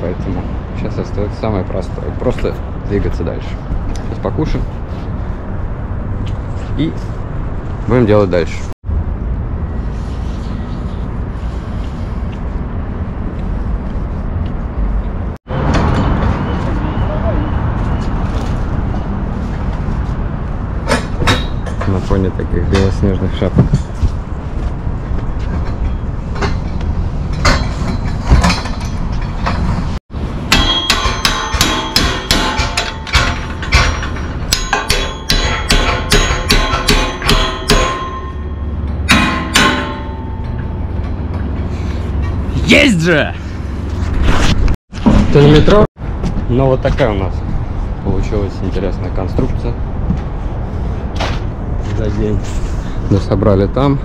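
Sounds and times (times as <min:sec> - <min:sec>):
hammer knocking on metal scaffolding: 0:30.5 - 0:40.6.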